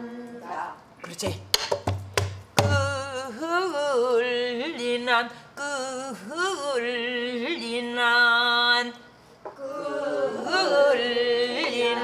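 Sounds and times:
woman singing: 2.6s - 9.0s, 10.4s - 12.0s.

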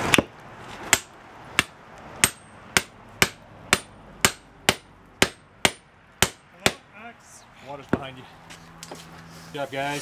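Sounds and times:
hammer striking metal with ringing: 0.9s - 6.8s.

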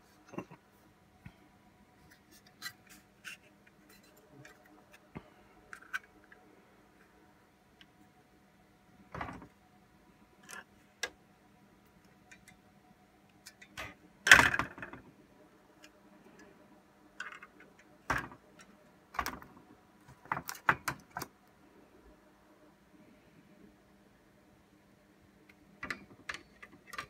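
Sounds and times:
plastic and metal clicks and knocks: 20.1s - 21.3s, 25.8s - 27.0s.

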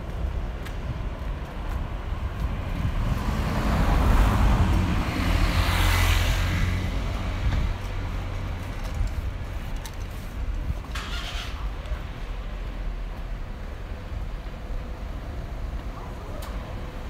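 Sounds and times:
low traffic rumble: 0.0s - 17.0s
vehicle passing close by: 2.8s - 8.6s.

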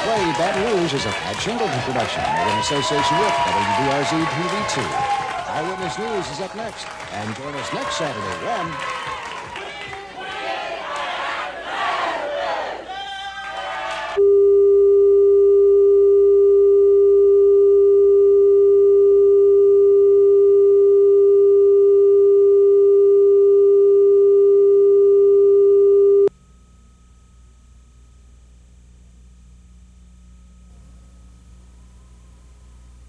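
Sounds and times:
loud single-pitched test tone: 14.2s - 28.5s
faint low hum: 14.2s - 33.0s.

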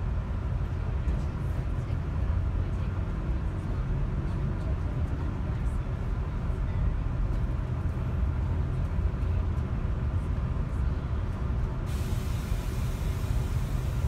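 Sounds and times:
vehicle rumble inside cabin: 0.0s - 14.0s
faint hiss: 11.9s - 14.0s.

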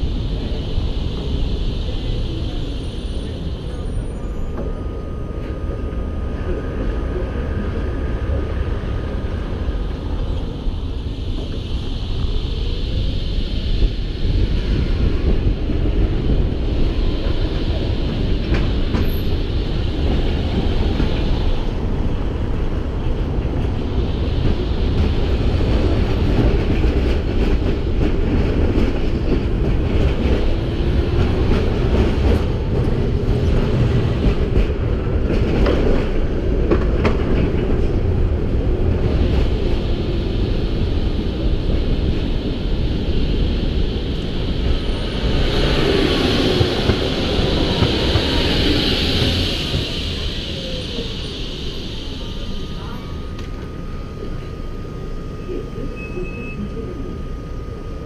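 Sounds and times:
tram rumbling along rails: 0.0s - 58.0s
faint whine: 49.4s - 58.0s.

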